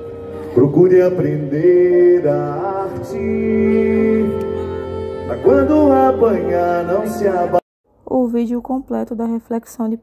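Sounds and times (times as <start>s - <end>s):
slow soft live music: 0.0s - 7.6s.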